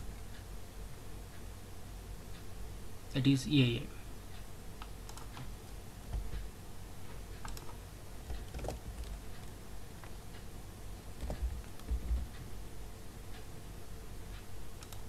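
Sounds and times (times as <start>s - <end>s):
computer keyboard keystrokes: 4.8s - 5.5s, 7.4s - 10.2s, 11.2s - 12.4s, 14.8s - 15.0s.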